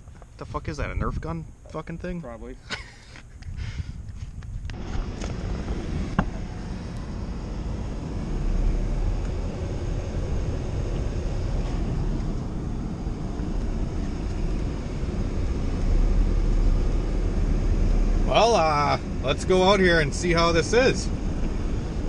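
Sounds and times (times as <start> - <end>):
car engine and road rumble: 0.0 - 22.0.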